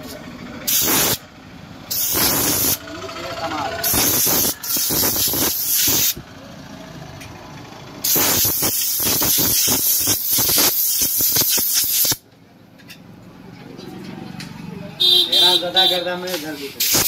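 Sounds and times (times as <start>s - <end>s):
compressed air blow gun hissing: 0.7s - 1.2s, 1.9s - 2.8s, 3.8s - 6.2s, 8.0s - 12.2s, 16.8s - 17.0s.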